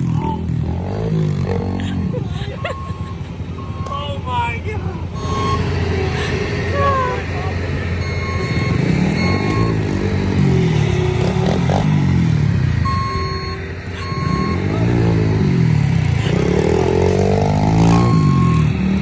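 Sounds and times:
dirt bike engine revving: 0.0 - 3.9, 5.0 - 19.0
backup alarm beeping: 2.6 - 4.1, 5.1 - 5.8, 7.9 - 10.2, 12.8 - 14.9, 17.6 - 18.7.

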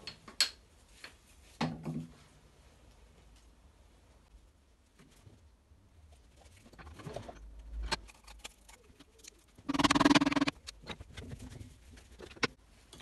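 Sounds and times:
loud steady pitched tone: 9.7 - 10.5.

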